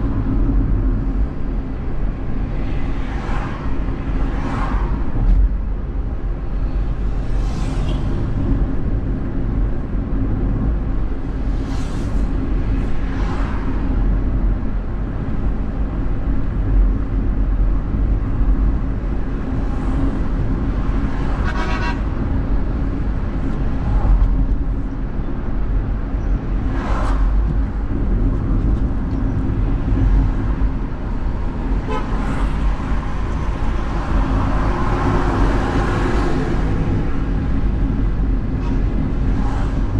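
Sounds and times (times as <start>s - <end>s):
car road and engine rumble: 0.0s - 39.9s
car horn toots: 21.4s - 22.1s, 31.8s - 32.2s.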